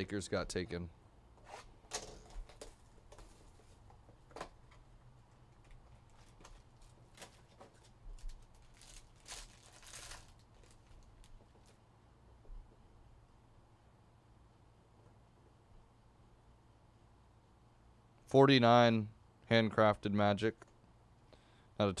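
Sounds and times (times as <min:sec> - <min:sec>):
wrapper crinkling: 0:05.6 - 0:11.8.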